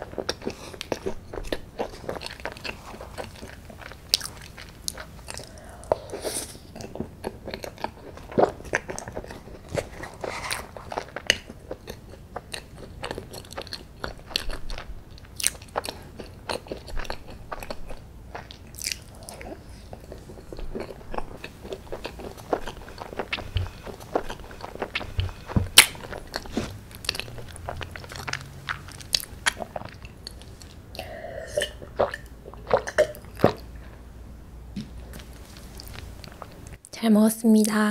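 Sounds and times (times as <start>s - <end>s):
wet mouth eating sounds: 0.0s - 33.8s.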